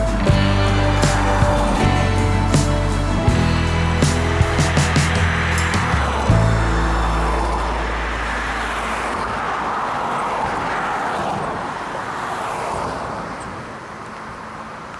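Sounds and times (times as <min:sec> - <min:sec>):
background music: 0:00.0 - 0:08.4
road traffic passing: 0:00.0 - 0:14.9.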